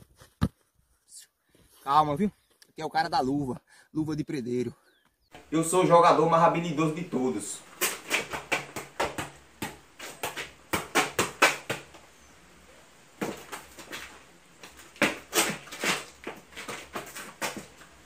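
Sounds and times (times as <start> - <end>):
football touches echoing: 7.1 - 12.0.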